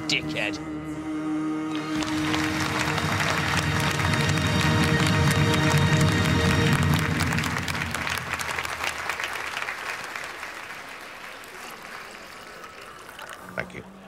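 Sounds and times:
music: 0:00.0 - 0:09.3
audience applauding: 0:01.8 - 0:14.0.

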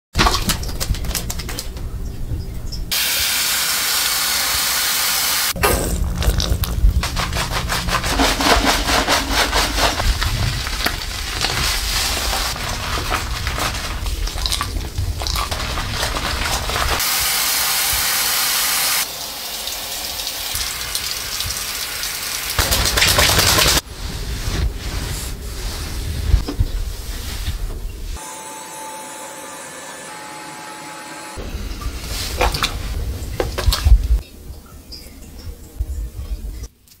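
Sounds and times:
shower spray hissing: 0:02.9 - 0:05.6, 0:15.5 - 0:23.9.

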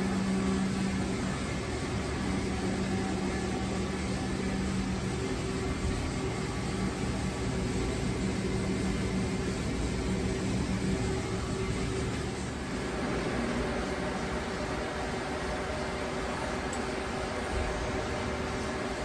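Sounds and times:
machinery humming and whirring: 0:00.0 - 0:19.0.

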